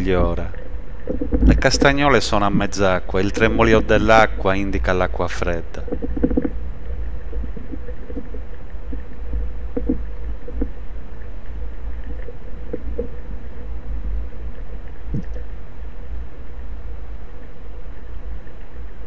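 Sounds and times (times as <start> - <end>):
faint hum: 0.0 - 19.0
underwater low rumble: 0.0 - 19.0
faint taps: 7.4 - 10.8.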